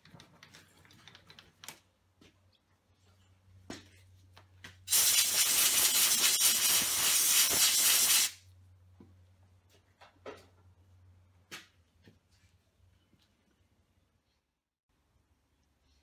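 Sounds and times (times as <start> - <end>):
compressed air blow gun hissing: 4.9 - 8.4.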